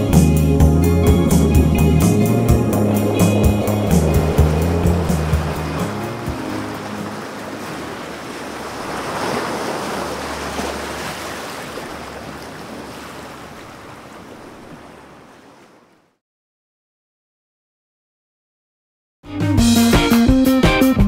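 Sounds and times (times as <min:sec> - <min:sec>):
sea waves washing: 0:00.0 - 0:16.2.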